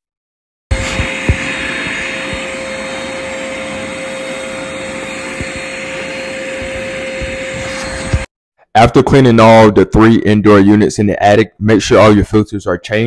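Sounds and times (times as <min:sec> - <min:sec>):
shop vacuum running: 0:00.7 - 0:08.3.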